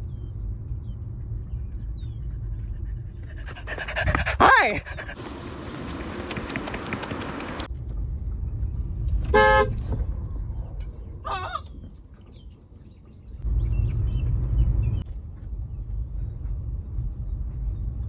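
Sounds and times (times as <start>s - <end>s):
car horn honk: 9.3s - 9.8s.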